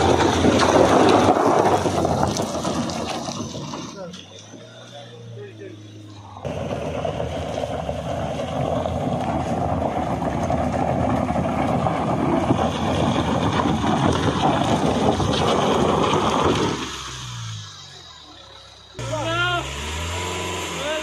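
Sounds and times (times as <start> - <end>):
stones crunching under tyres: 0.0 - 5.1, 6.0 - 19.1
vehicle engine running: 0.0 - 21.0
wind buffeting microphone: 7.0 - 16.8.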